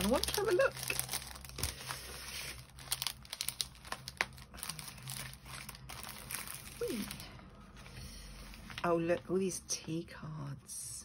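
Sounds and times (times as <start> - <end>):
plastic bag crinkling: 0.0 - 7.4
plastic and paper rustling: 0.0 - 9.3.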